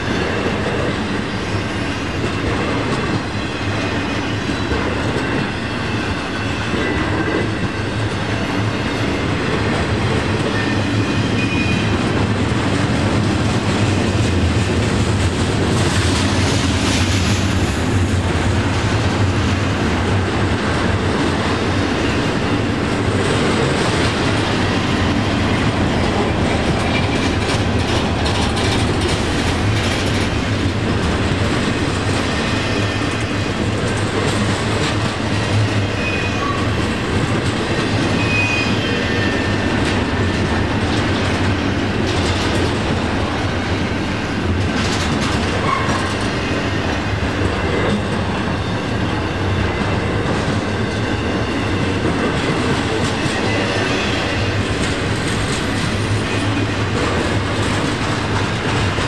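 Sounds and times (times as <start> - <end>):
freight train rumbling on rails: 0.0 - 59.0
faint high wheel squeals: 36.0 - 36.9, 38.2 - 39.6.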